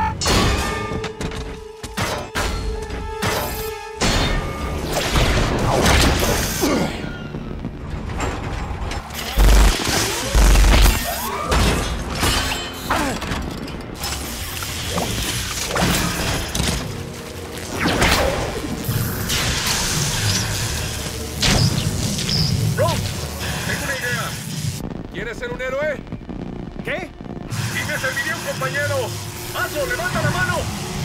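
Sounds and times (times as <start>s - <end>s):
electric whips crackling: 14.2s - 23.2s.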